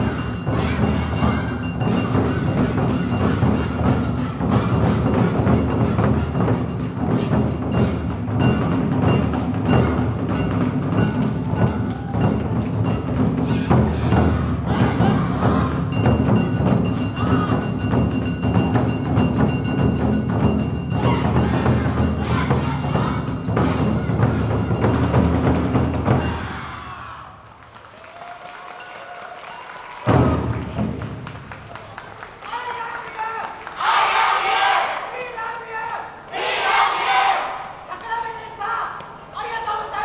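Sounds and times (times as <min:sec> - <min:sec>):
ringing hand gong: 0:00.0 - 0:15.2, 0:15.9 - 0:26.7
taiko drums: 0:00.0 - 0:27.1, 0:30.0 - 0:31.8.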